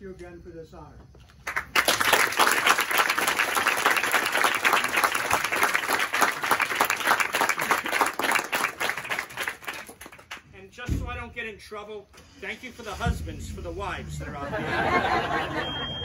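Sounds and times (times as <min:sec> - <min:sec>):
speech: 0:00.0 - 0:01.0, 0:10.5 - 0:14.5
audience applauding: 0:01.4 - 0:10.4.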